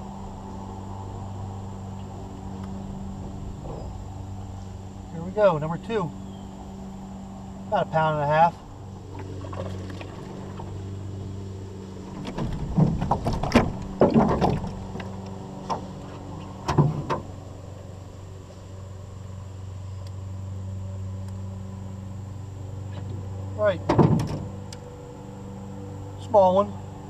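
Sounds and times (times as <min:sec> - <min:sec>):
steady low hum: 0:00.0 - 0:27.0
knocks and clatters in metal boat: 0:12.0 - 0:17.3, 0:23.8 - 0:24.5.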